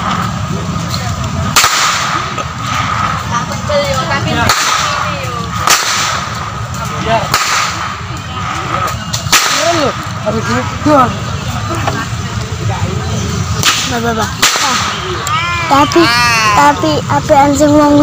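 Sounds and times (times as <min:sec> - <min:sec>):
whip cracking: 0:01.5 - 0:03.1, 0:04.4 - 0:06.5, 0:07.3 - 0:08.1, 0:08.7 - 0:10.0, 0:13.6 - 0:15.1.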